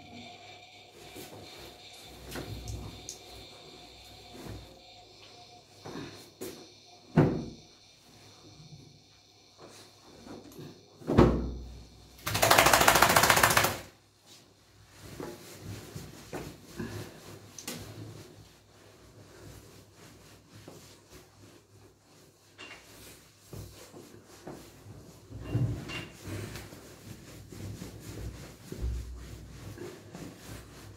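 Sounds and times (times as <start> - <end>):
towel rubbing and handling: 0.2 - 10.8, 11.8 - 30.9
thump: 7.1 - 7.6, 11.0 - 11.6
dog shaking rapid flapping: 12.2 - 14.0.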